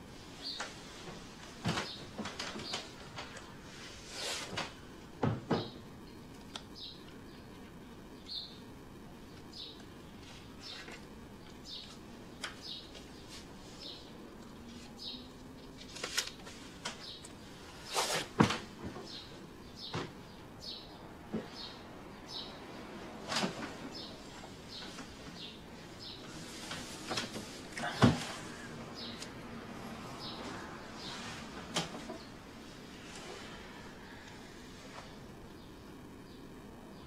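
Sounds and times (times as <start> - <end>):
clothes and bedding rustling: 0.0 - 5.8, 11.7 - 19.2, 22.9 - 35.3.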